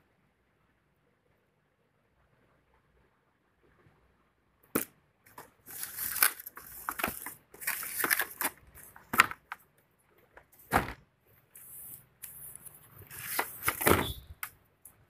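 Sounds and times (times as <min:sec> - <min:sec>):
cardboard and plastic rustling: 0:05.3 - 0:09.6, 0:11.6 - 0:14.2.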